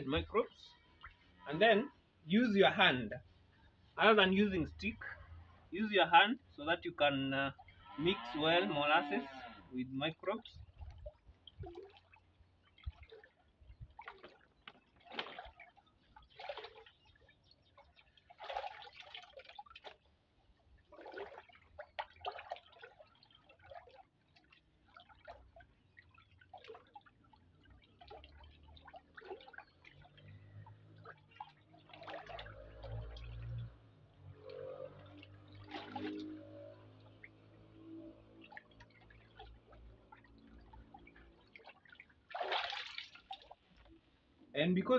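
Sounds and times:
liquid sloshing in a drum: 10.1 - 44.9.

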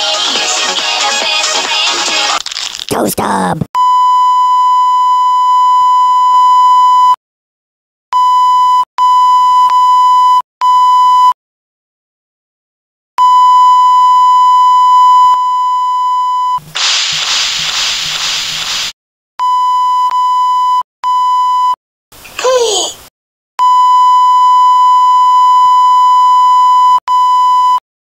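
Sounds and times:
censor beep tone: 3.8 - 7.2, 8.2 - 11.4, 13.2 - 16.6, 19.4 - 21.8, 23.6 - 27.8
burst of hiss: 16.8 - 18.9.

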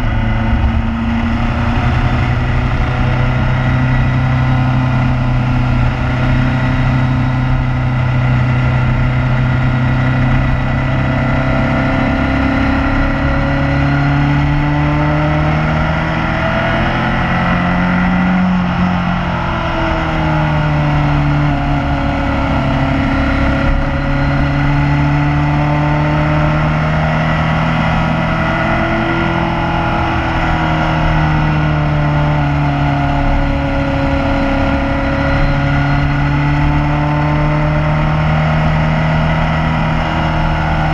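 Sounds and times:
motorcycle engine running: 0.0 - 40.9
wind and road noise: 0.0 - 40.9.

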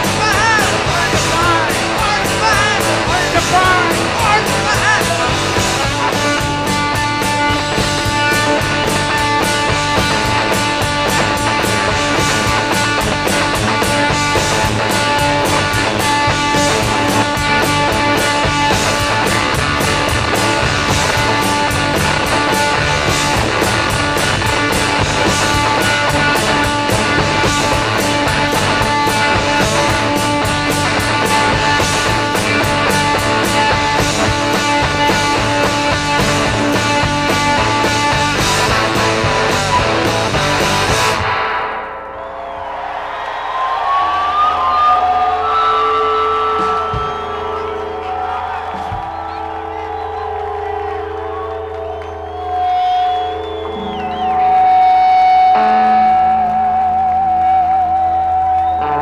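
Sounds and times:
steady drum beat: 0.0 - 41.4, 46.6 - 51.4
electric guitars: 0.0 - 42.6, 43.2 - 59.0
bass guitar: 0.0 - 59.0.

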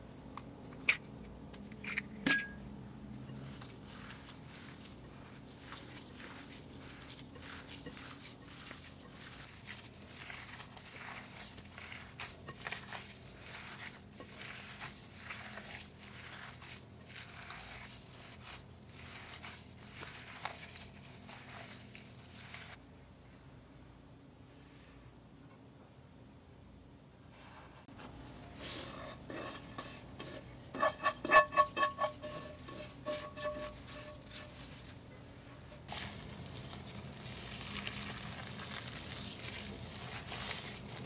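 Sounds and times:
hands squelching ground meat: 3.1 - 22.8, 35.9 - 41.0.

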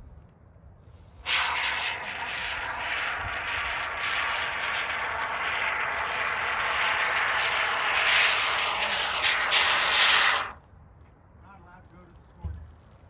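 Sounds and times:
spray foam can hissing: 1.2 - 10.6.

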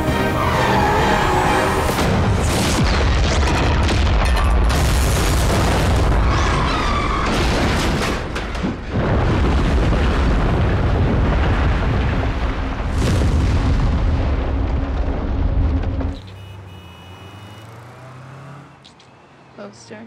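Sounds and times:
explosions rumbling: 2.0 - 16.2.

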